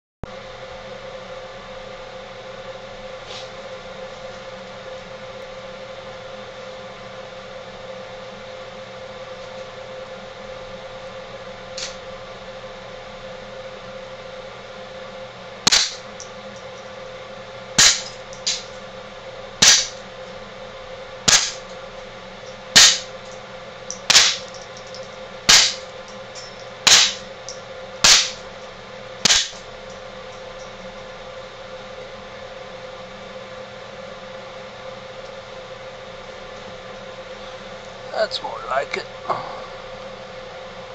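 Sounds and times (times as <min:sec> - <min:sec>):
suppressed pistol shots: 0:15.7 - 0:16.0, 0:24.1 - 0:24.4, 0:26.9 - 0:27.2.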